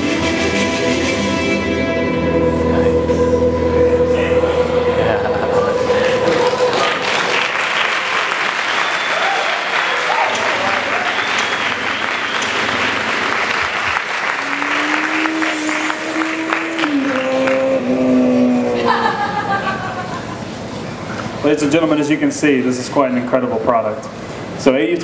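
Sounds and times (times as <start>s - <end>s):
music: 0.0s - 7.5s
audience applauding: 5.5s - 20.3s
voices among clapping: 6.1s - 19.0s.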